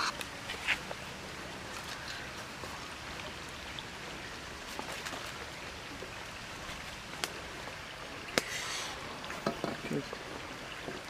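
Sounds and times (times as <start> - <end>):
fire crackles and pops: 7.1 - 7.6.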